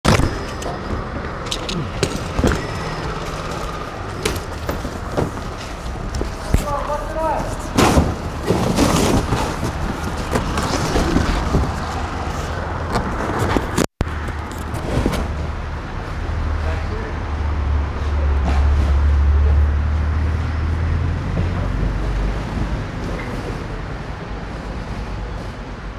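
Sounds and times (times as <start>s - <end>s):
street traffic hum: 0.0s - 25.9s
cardboard rustling and scraping: 4.4s - 15.4s.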